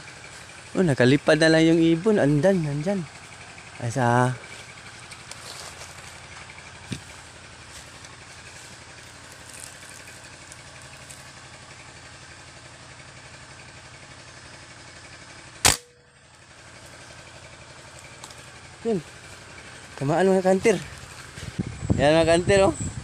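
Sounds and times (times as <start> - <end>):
rifle shot: 15.6 - 16.0.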